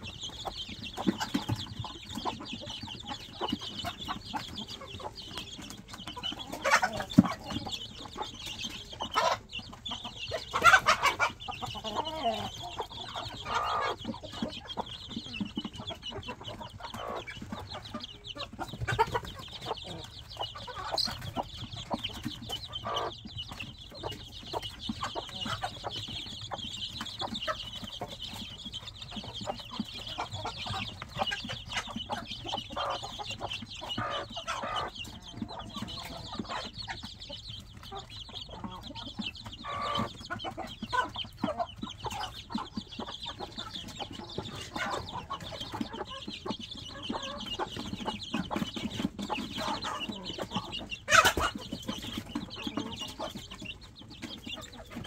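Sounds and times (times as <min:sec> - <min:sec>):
chicks peeping: 0:00.0 - 0:55.0
hen clucking: 0:00.0 - 0:55.0.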